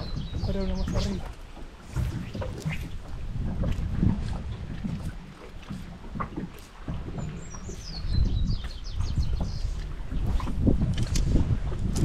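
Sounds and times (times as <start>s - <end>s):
bird chirping: 0.0s - 1.2s
water slapping against boat hull: 0.0s - 12.0s.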